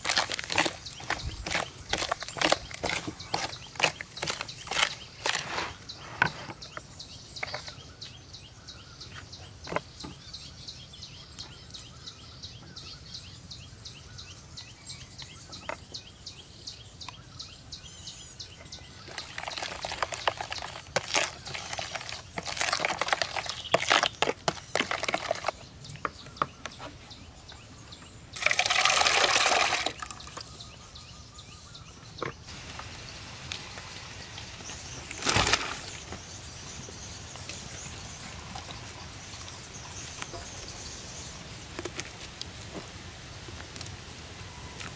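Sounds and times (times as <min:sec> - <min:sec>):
metal spoon stirring in plastic bowl: 0:00.0 - 0:05.6, 0:19.1 - 0:25.6.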